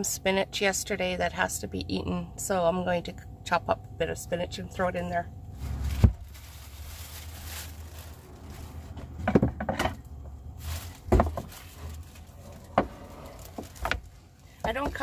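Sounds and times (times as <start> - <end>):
plastic bag crinkling: 5.5 - 9.2, 10.4 - 15.0.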